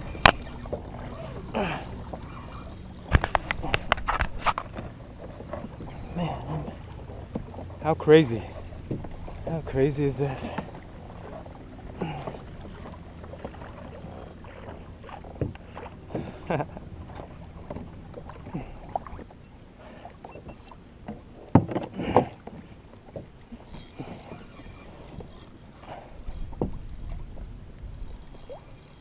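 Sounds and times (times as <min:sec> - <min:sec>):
water slapping against kayak hull: 0:00.0 - 0:19.3, 0:19.9 - 0:29.0.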